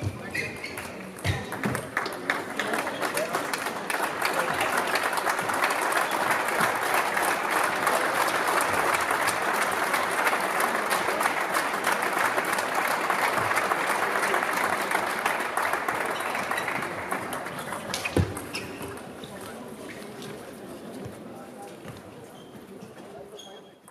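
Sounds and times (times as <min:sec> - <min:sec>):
crowd applause: 0:01.5 - 0:18.6.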